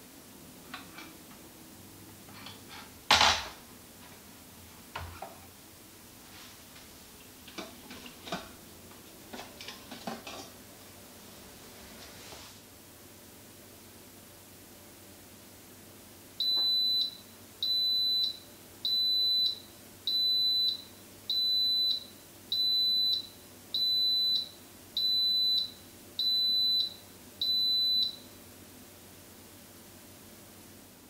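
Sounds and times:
pressure cooker beeping: 16.4 - 28.2.

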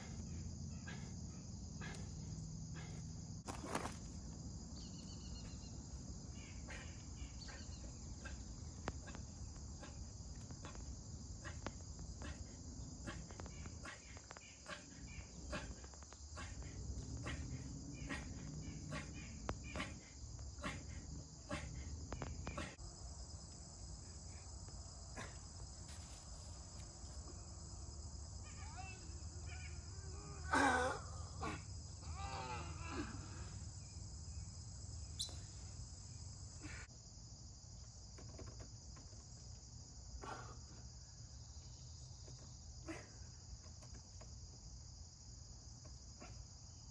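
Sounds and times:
insect chorus drone: 0.0 - 46.9.

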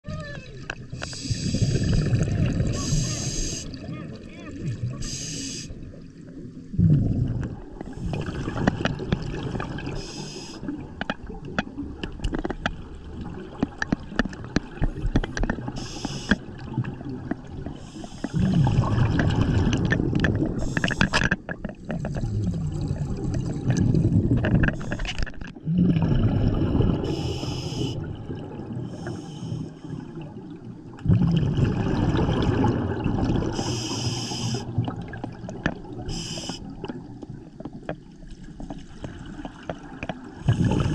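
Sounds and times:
regulator inhale hiss: 0.9 - 2.0, 2.8 - 3.8, 5.0 - 5.8, 9.9 - 10.7, 15.8 - 16.4, 17.8 - 18.5, 20.6 - 21.2, 27.0 - 28.0, 28.9 - 30.1, 33.6 - 34.7, 36.1 - 36.8
exhaled bubbles rushing: 1.2 - 5.2, 5.9 - 21.1, 21.8 - 29.0, 29.9 - 37.4, 38.8 - 40.9.

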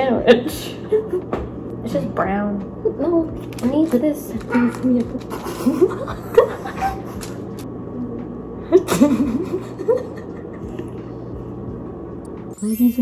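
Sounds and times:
steady low hum: 0.0 - 13.0
woman giggling: 5.3 - 7.3, 8.7 - 10.8.

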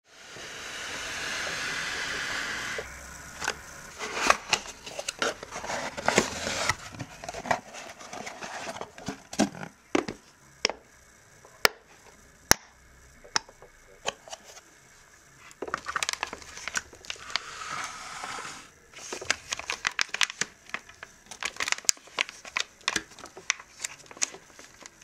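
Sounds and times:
cardboard scraping: 3.4 - 9.6.

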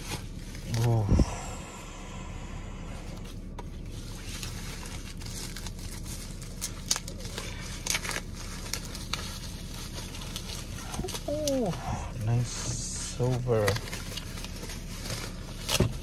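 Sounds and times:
bubble wrap crinkling: 0.0 - 1.1, 3.0 - 16.0
steady low hum: 0.0 - 16.0.

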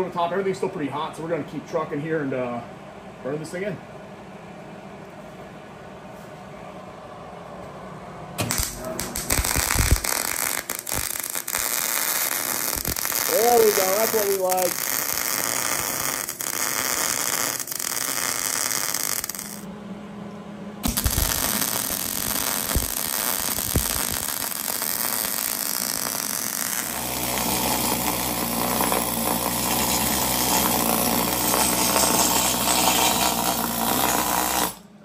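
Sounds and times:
pneumatic scaling tool hammering: 8.4 - 19.6, 20.8 - 34.8
welder arc crackling: 8.4 - 19.7, 20.8 - 34.9.

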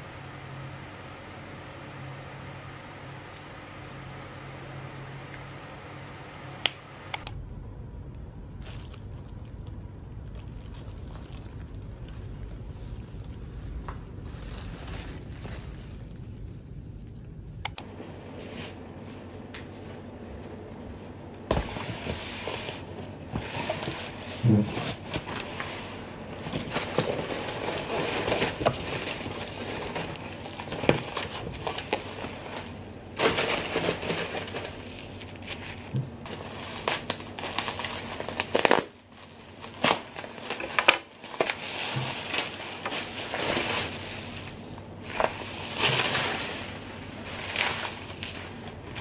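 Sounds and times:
bubble wrap crinkling: 8.4 - 17.6, 21.5 - 49.0.

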